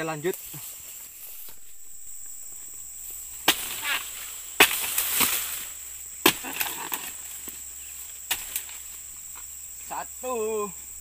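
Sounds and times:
rustling and crackling: 0.0 - 9.9
chisel chopping into palm: 3.4 - 5.6, 6.2 - 7.6, 8.3 - 8.8.

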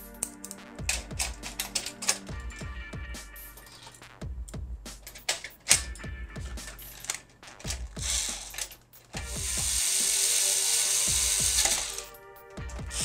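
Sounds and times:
handling clicks: 0.2 - 2.5, 3.6 - 6.0
electric screwdriver driving screw: 7.7 - 8.6, 9.2 - 12.1.

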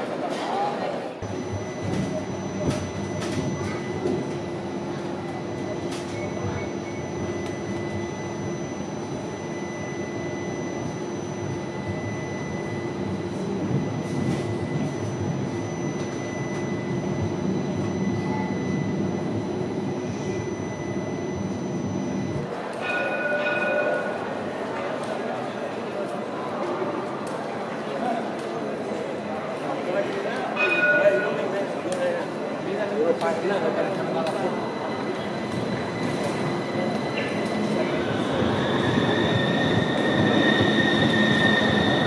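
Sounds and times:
high whine: 1.2 - 23.6, 34.0 - 42.0
tram wheels rumbling on rails: 33.9 - 42.0.

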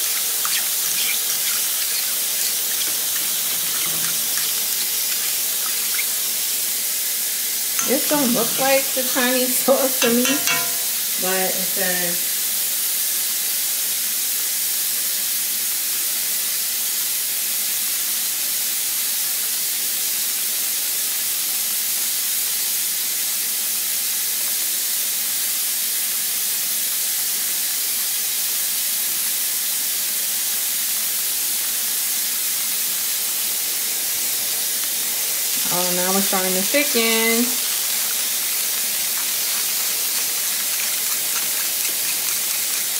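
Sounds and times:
sauce simmering in a wok: 0.0 - 11.4, 12.3 - 42.9.

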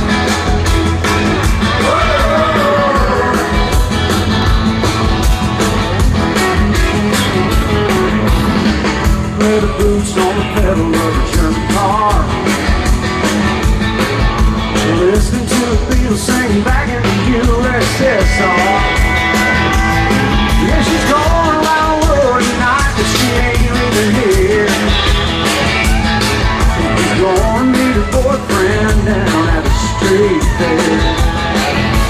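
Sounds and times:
bass: 0.0 - 32.0
country-rock band over pa: 0.0 - 32.0
sliding lead guitar lines: 0.0 - 32.0
steady drum beat: 0.0 - 32.0.

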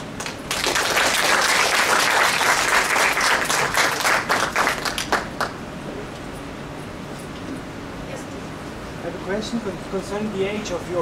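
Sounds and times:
audience applauding: 0.2 - 5.6.

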